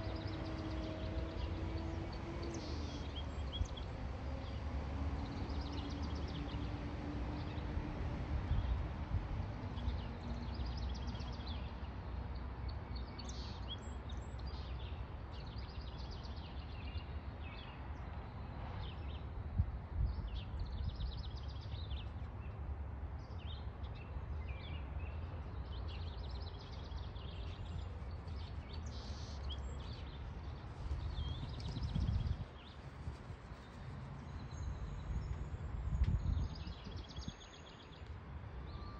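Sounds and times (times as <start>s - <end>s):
wind rumble on microphone: 0.0s - 11.6s, 16.5s - 22.5s, 25.7s - 38.9s
songbirds chirping: 0.0s - 38.9s.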